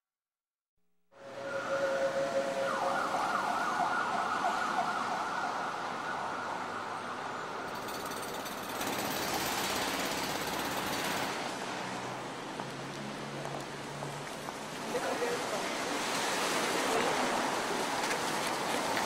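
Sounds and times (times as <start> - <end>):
siren: 1.1 - 7.8.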